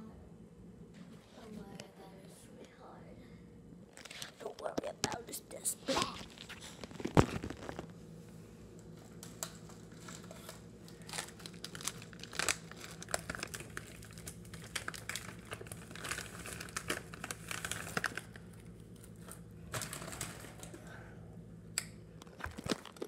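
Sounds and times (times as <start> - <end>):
low steady hum: 0.0 - 23.0
crinkling and rustling clicks: 6.2 - 7.9, 9.2 - 18.4, 19.0 - 20.8, 22.2 - 23.0.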